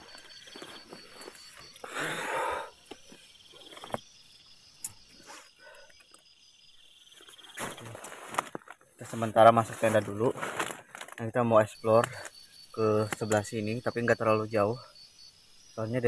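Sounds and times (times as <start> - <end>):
rustling inside nylon tent: 0.0 - 4.1, 7.2 - 12.3
insects chirping: 0.0 - 16.0.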